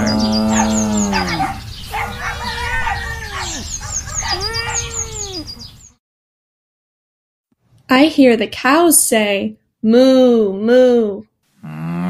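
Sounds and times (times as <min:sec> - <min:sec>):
cow mooing: 0:00.0 - 0:01.6, 0:11.6 - 0:12.0
small birds chirping: 0:00.0 - 0:06.0.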